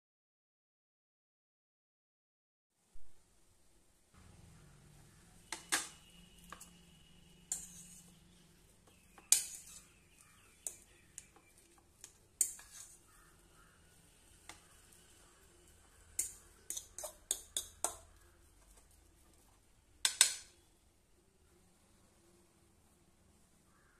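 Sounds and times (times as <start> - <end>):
faint low hum: 3.0 - 12.4, 13.0 - 23.9
fork scraping against a bowl: 5.5 - 13.8, 15.9 - 18.3.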